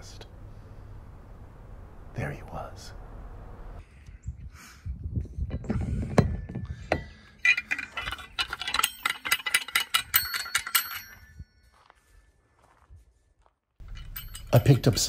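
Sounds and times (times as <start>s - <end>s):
metal tools clanging together: 5.6s - 11.7s, 13.8s - 15.0s.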